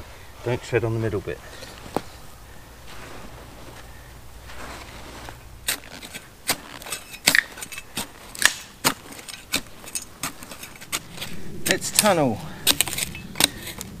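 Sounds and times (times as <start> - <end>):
digging tool striking earth: 5.6 - 14.0.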